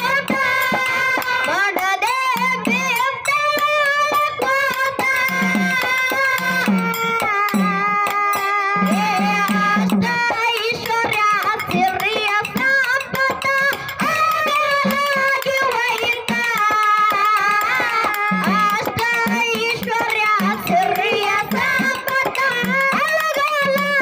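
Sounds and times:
woman singing folk song: 0.0s - 6.4s, 7.4s - 24.0s
drum thumping: 0.0s - 24.0s
hand cymbals clashing: 0.0s - 24.0s.

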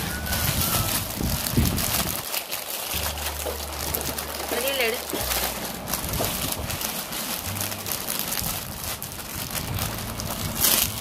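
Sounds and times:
loud plastic crackle: 0.0s - 11.0s
plastic bags crinkling: 0.0s - 11.0s.

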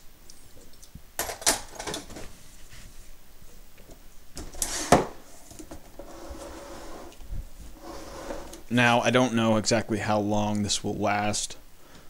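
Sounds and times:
handling rustles and knocks: 1.2s - 8.7s.

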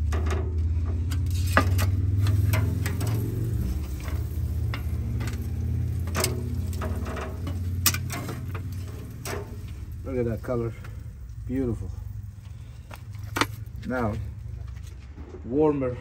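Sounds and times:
low rumble: 0.0s - 16.0s
metal tongs scraping grates: 0.3s - 10.4s
meat sizzling: 1.2s - 14.7s.

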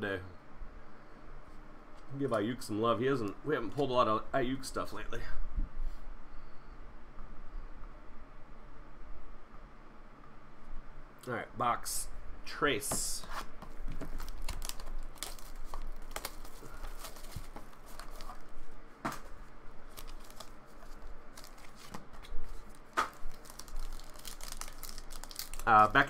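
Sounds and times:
foil wrapper crinkling and tearing: 14.0s - 18.6s, 19.8s - 26.0s.

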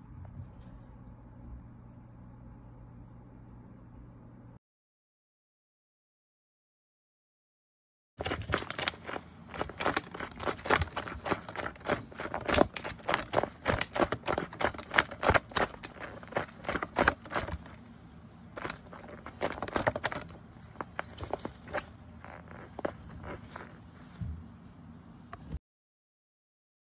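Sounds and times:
cat claws scratching cloth: 8.2s - 17.8s, 18.5s - 24.6s.

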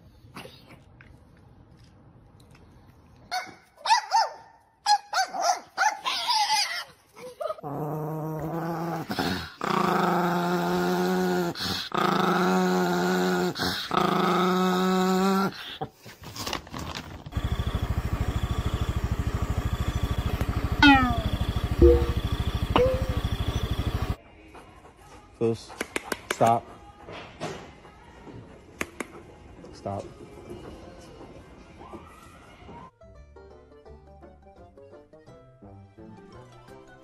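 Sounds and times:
small dog growling: 7.3s - 15.9s
steady buzzing drone: 17.3s - 24.2s.

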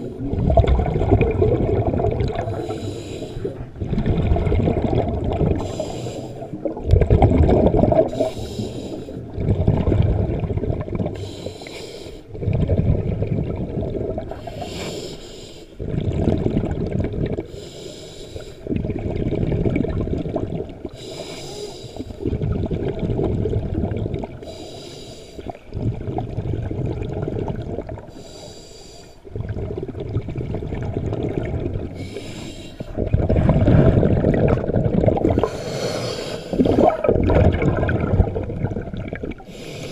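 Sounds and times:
exhaled bubbles rumbling: 0.0s - 11.6s, 12.2s - 14.7s, 15.7s - 17.5s, 18.6s - 21.1s, 21.9s - 24.6s, 25.4s - 28.3s, 29.2s - 39.9s
regulator inhale hiss: 2.5s - 3.6s, 5.6s - 6.6s, 8.1s - 9.2s, 11.2s - 12.3s, 14.3s - 15.8s, 17.5s - 18.7s, 21.0s - 22.2s, 24.4s - 25.5s, 28.1s - 29.2s, 32.0s - 33.0s, 35.4s - 36.8s, 39.5s - 39.9s.

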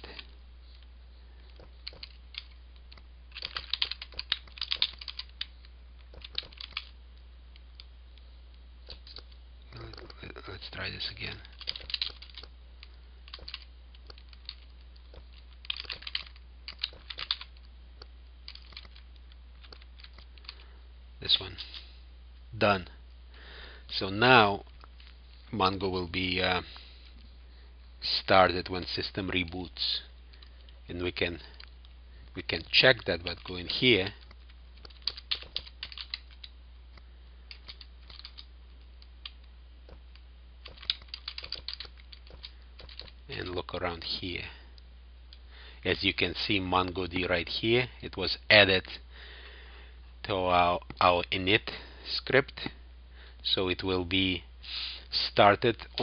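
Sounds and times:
low hum: 0.0s - 54.7s
keyboard typing: 3.3s - 5.5s, 6.1s - 6.9s, 11.6s - 12.5s, 13.3s - 17.5s, 34.2s - 36.4s, 40.6s - 43.2s.

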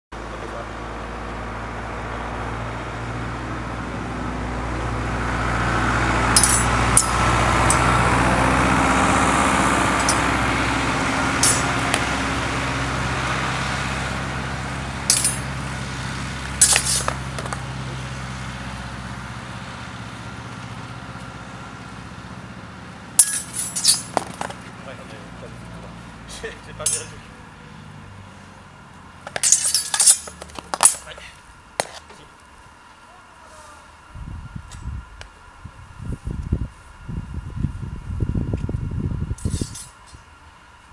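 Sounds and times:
tractor engine driving past: 0.2s - 32.8s
steel swords clashing: 6.3s - 7.8s, 10.0s - 10.3s, 11.4s - 12.1s, 15.0s - 15.5s, 16.6s - 17.6s, 23.2s - 24.5s, 26.8s - 27.3s, 29.3s - 32.0s, 39.4s - 40.1s.

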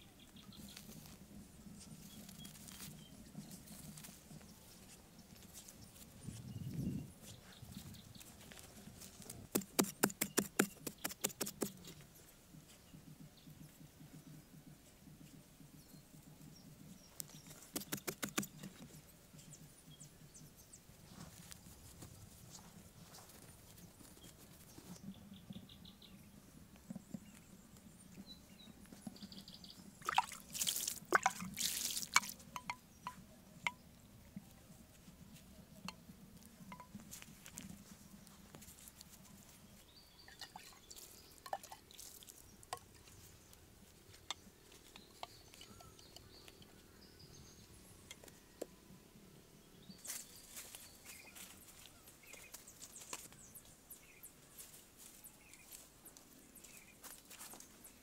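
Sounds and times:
water dripping and splashing: 30.0s - 32.4s, 40.3s - 42.4s.

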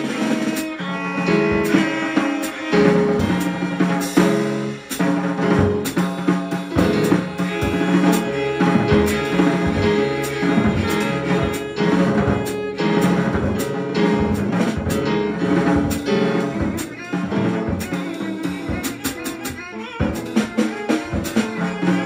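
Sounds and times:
drum kit with cymbal hits: 0.0s - 22.0s.

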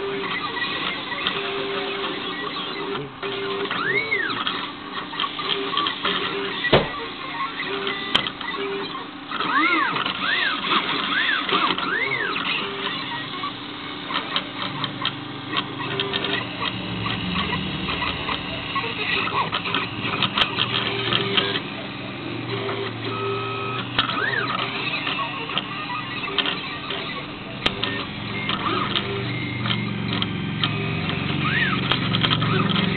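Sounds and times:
stepper motors whining: 0.0s - 32.9s
steady hum: 10.6s - 32.9s.

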